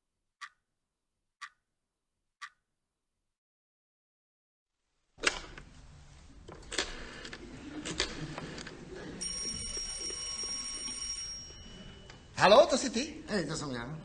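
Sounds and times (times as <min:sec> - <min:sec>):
telephone bell ringing: 0:09.2 - 0:12.8.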